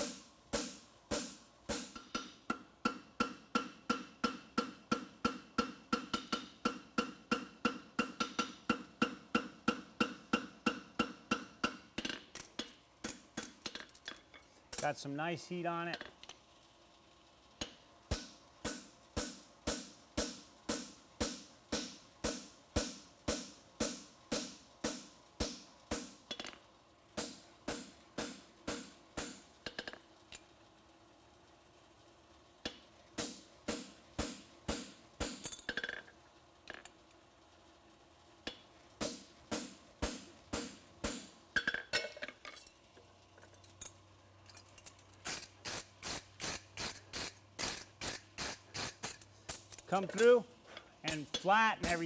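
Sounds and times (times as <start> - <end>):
hammer striking horseshoe on anvil: 0.6 - 13.8, 17.6 - 26.6, 27.2 - 30.0, 32.6 - 36.0, 51.1 - 52.0.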